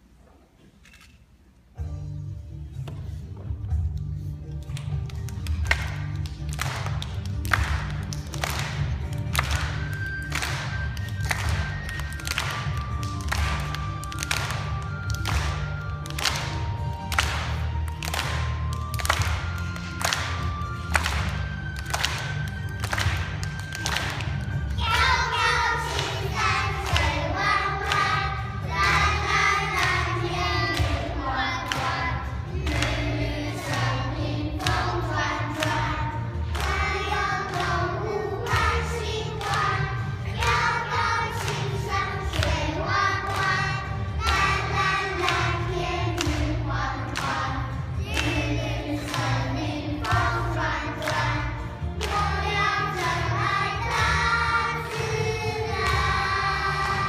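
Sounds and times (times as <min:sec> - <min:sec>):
music track with steady beat: 0:01.8 - 0:57.0
children singing: 0:24.8 - 0:57.0.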